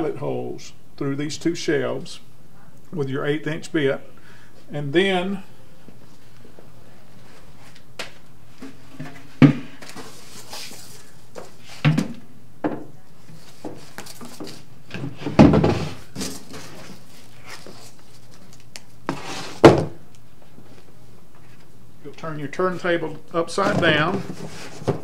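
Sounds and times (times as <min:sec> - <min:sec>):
knocks and thuds of shelf: 0:09.0 - 0:09.8, 0:14.9 - 0:16.6, 0:19.6 - 0:20.0, 0:23.6 - 0:25.0
cardboard packaging handled: 0:13.3 - 0:14.7, 0:15.9 - 0:19.7.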